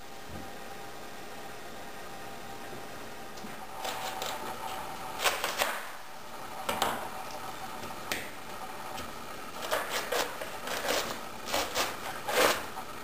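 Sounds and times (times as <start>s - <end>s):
knife cutting cabbage on board: 9.6s - 12.7s.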